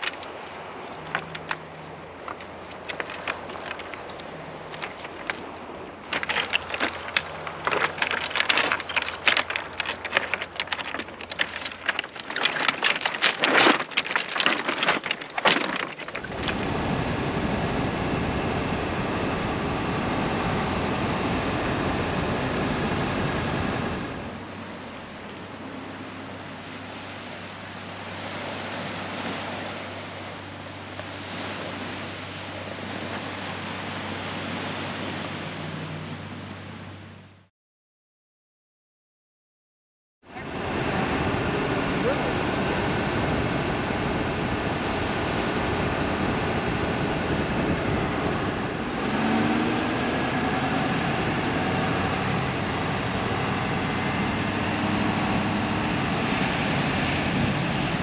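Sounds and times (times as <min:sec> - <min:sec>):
beach cobbles clattering: 0:00.0 - 0:16.7, 0:45.1 - 0:58.0
car engine and road noise: 0:00.0 - 0:37.5, 0:40.4 - 0:58.0.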